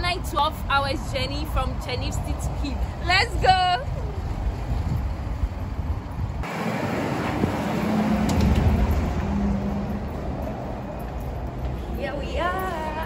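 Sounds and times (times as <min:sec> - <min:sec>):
road traffic noise: 0:00.0 - 0:13.0
loud rushing noise: 0:06.4 - 0:11.2.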